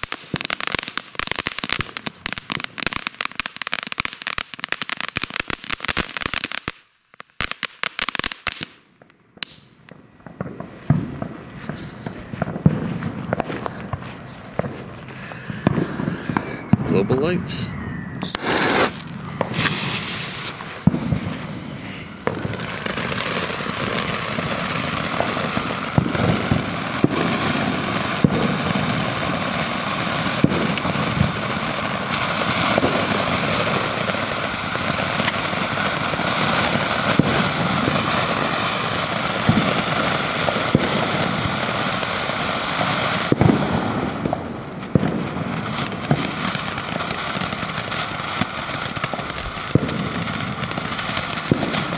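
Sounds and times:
firework fountain hissing: 0:00.0 - 0:06.8, 0:10.6 - 0:51.9
sharp pops: 0:18.2 - 0:21.4.

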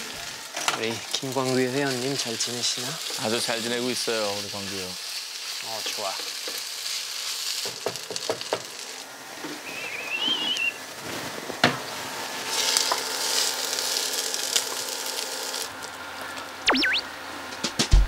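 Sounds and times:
rice sizzling in a frying pan: 0:00.0 - 0:17.3
brief wavering whistle: 0:09.7 - 0:10.8, 0:16.7 - 0:17.1.

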